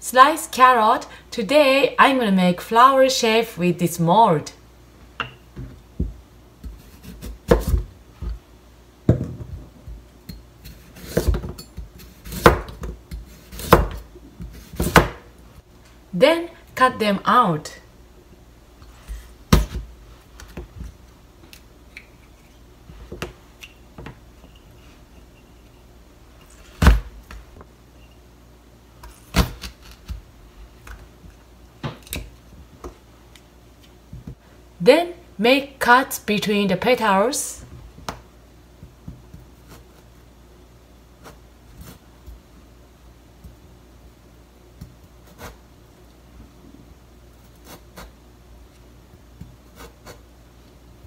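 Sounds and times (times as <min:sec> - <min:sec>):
knife slicing carrot: 0:10.6 - 0:15.2, 0:45.2 - 0:45.6.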